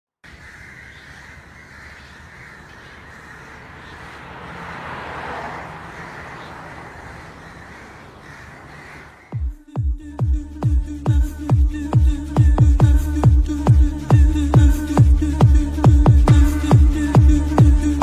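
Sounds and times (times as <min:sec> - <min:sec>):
crows cawing: 0:00.2 - 0:09.6.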